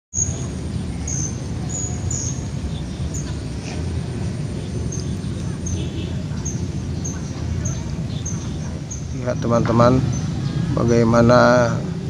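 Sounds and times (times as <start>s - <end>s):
small birds chirping: 0.1s - 12.0s
steady low rumble: 0.2s - 12.0s.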